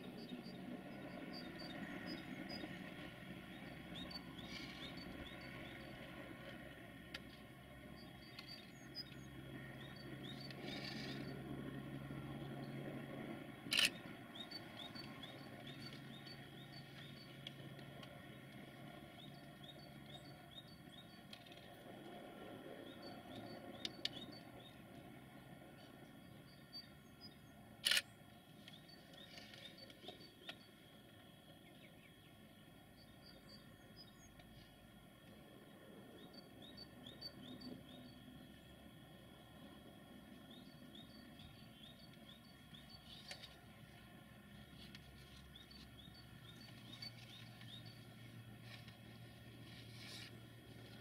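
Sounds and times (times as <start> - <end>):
distant freight train rumble: 0.0 - 27.8
small birds chirping: 7.2 - 11.4, 12.3 - 21.8, 40.2 - 51.0
sharp clicks: 27.8 - 30.6.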